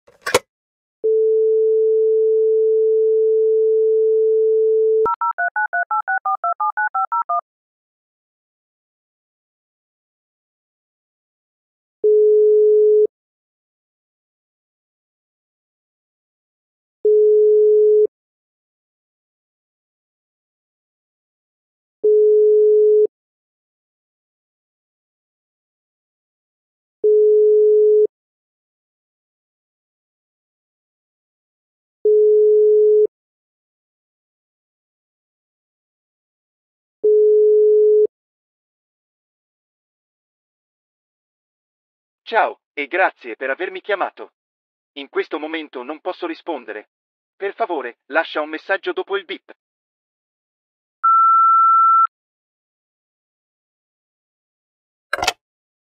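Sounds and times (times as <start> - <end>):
telephone handset click: 0.1 - 0.4, 55.2 - 55.4
dial tone: 1.0 - 7.4, 12.0 - 13.1, 17.1 - 18.1, 22.0 - 23.1, 27.0 - 28.1, 32.1 - 33.1, 37.0 - 38.1, 51.0 - 52.1
dtmf key tones: 55.2 - 55.4.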